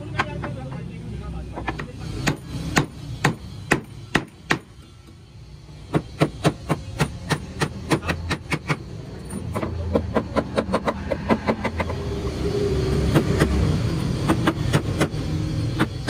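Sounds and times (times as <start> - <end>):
hammer driving nails into wood: 2.2 - 4.7, 5.9 - 8.8.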